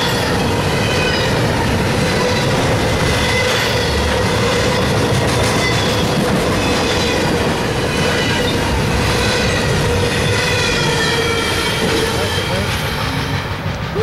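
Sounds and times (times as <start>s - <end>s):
train wheels rumbling on rail: 0.0s - 14.0s.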